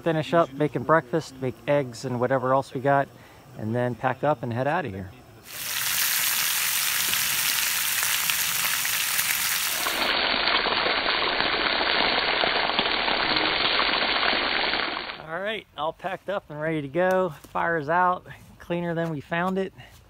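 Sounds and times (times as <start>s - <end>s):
bacon sizzling in a skillet: 5.5s - 15.2s.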